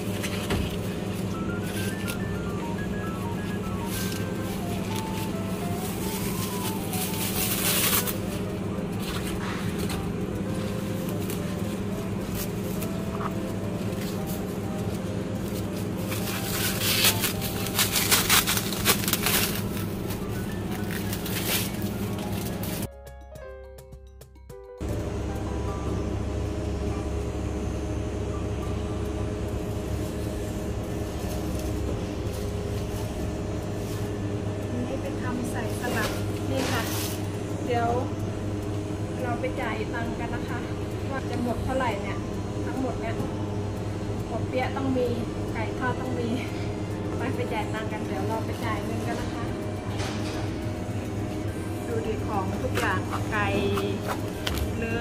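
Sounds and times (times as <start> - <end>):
plastic bag rustling: 0.0 - 22.9
steady low hum: 0.0 - 22.9, 24.8 - 55.0
supermarket background rumble: 0.0 - 22.9, 24.8 - 55.0
soft background music: 0.0 - 55.0.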